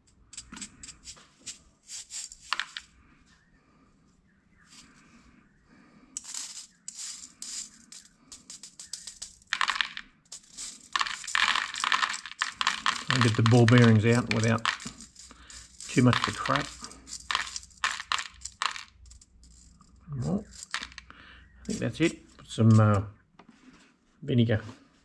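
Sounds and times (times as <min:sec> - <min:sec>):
ball bearings clicking in metal sieve: 0:00.0 - 0:02.9, 0:06.2 - 0:23.0.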